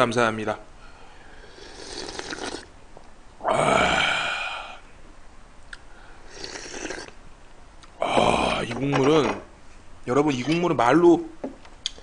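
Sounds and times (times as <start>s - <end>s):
man slurping broth: 1.4s - 2.7s, 6.3s - 7.2s
man sighing: 3.4s - 4.8s, 8.0s - 8.6s.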